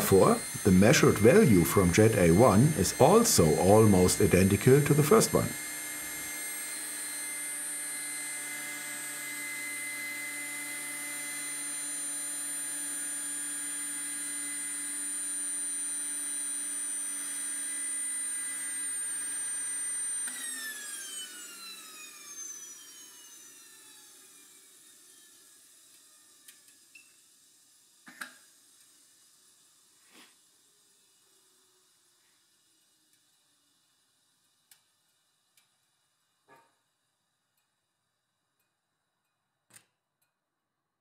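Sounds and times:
jet turbine whining: 0:00.0 - 0:05.6.

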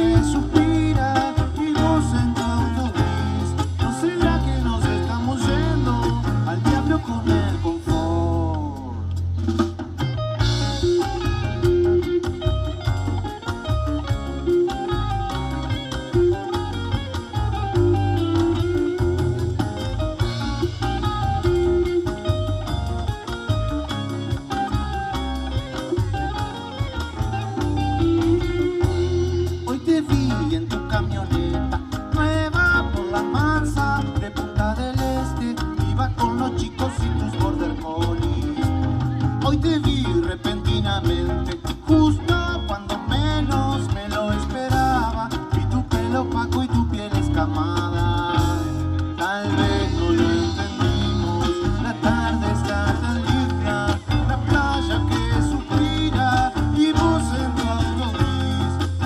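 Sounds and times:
electric guitar bending notes: 0:00.0 - 0:59.0
live rock band playing: 0:00.0 - 0:59.0.

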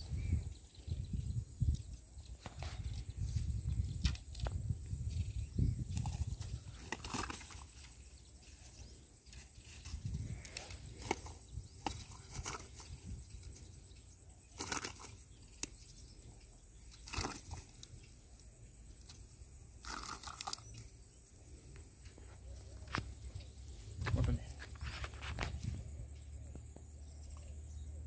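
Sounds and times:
grass rustling: 0:05.8 - 0:23.2, 0:23.8 - 0:26.1
fish flapping on grass: 0:06.0 - 0:07.9, 0:11.0 - 0:13.0, 0:14.6 - 0:15.1, 0:17.0 - 0:17.7.

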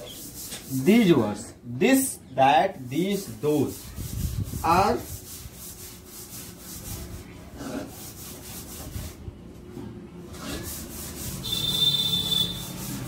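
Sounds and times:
marker rubbing on whiteboard: 0:00.0 - 0:01.2, 0:02.9 - 0:09.2, 0:10.3 - 0:13.0.

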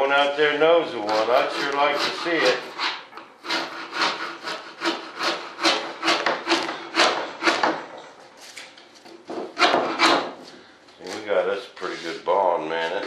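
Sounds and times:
hand scraper scraping wood: 0:01.0 - 0:07.8, 0:09.5 - 0:10.5.

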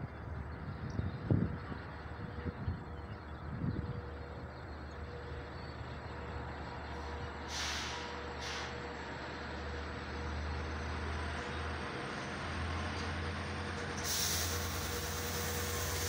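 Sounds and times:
diesel locomotive engine running: 0:00.0 - 0:16.0
air brake hisses: 0:07.5 - 0:08.8, 0:14.0 - 0:16.0.

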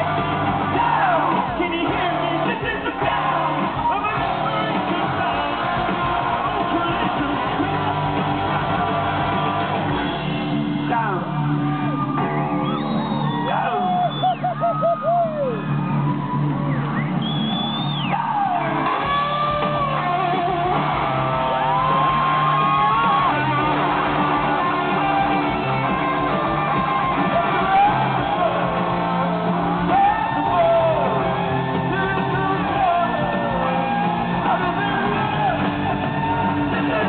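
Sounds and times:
drums: 0:00.0 - 0:37.0
electric guitars: 0:00.0 - 0:37.0
live rock band: 0:00.0 - 0:37.0.

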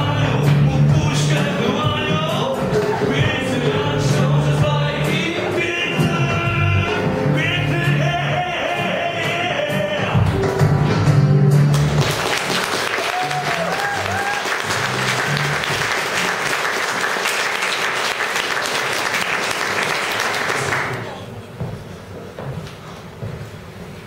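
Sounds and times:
background music: 0:00.0 - 0:21.1
audience applauding: 0:11.7 - 0:21.2.

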